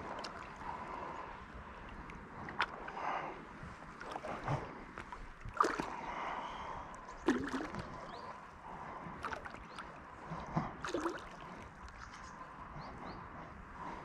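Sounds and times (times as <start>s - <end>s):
water lapping and gurgling: 0.0s - 14.0s
short splashes: 4.0s - 6.0s, 7.2s - 8.1s, 10.8s - 12.3s.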